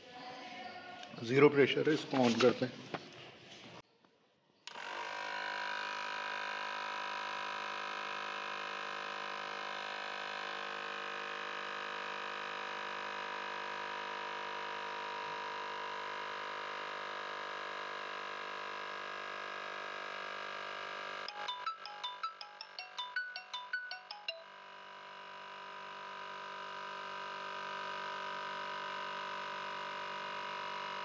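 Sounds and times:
tyre inflator compressor humming: 4.7s - 22.1s, 24.3s - 31.0s.

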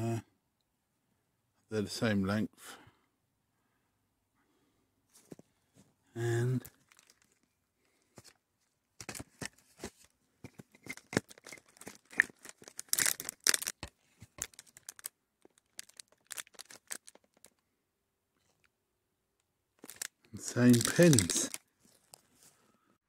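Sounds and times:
plastic wrapping crinkling: 6.7s - 7.5s, 9.0s - 17.6s, 19.8s - 22.3s.

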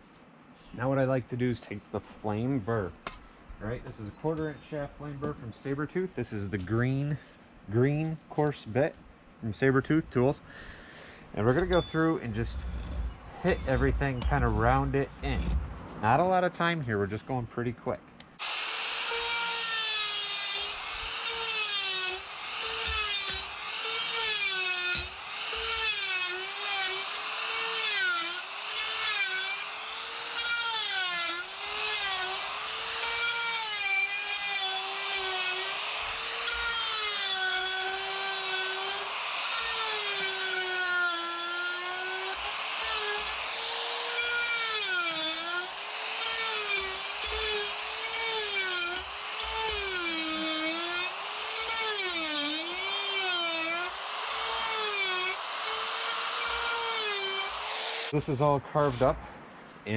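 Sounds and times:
die grinder whining: 10.8s - 15.8s, 18.4s - 58.2s.

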